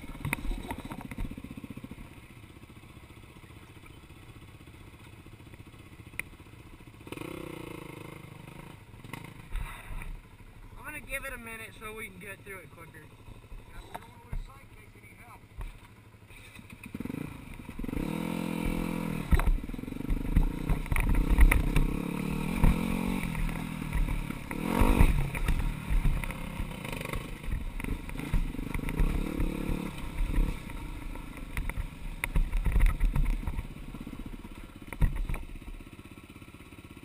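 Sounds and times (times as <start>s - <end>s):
dirt bike engine revving: 6.7s - 35.9s
bike knocking over rocks: 18.6s - 33.8s, 34.8s - 35.6s.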